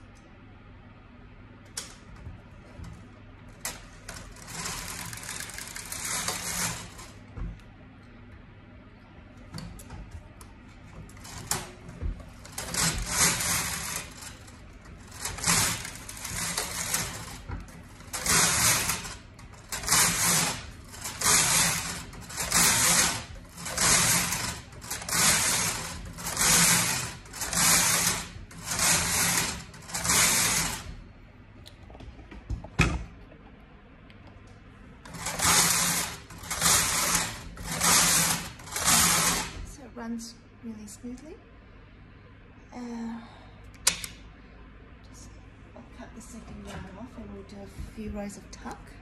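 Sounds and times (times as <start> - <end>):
knitting machine carriage sweeping: 1.7 - 7.6, 9.3 - 31.0, 35.0 - 39.8.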